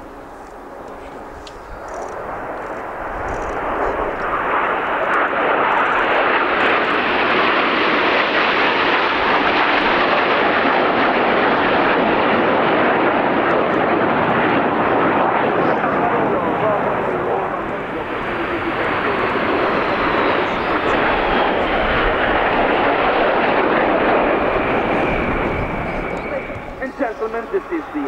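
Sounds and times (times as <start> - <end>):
jets flying over: 0.0 - 28.0.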